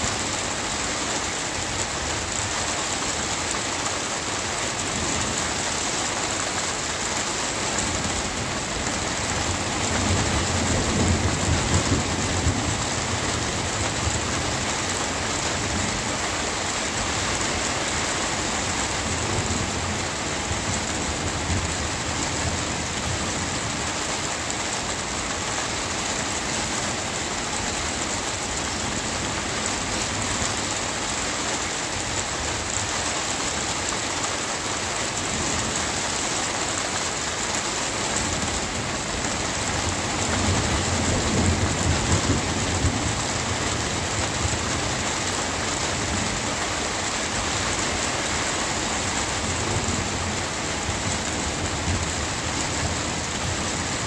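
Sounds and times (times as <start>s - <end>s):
steady rain falling: 0.0s - 54.0s
low rumble of thunder: 7.7s - 16.4s, 38.2s - 46.7s.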